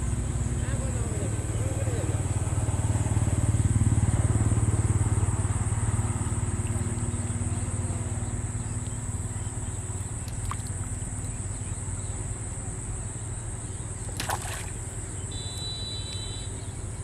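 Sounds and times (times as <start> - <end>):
motor engine humming: 0.0 - 17.0
high insect buzz: 13.7 - 16.8.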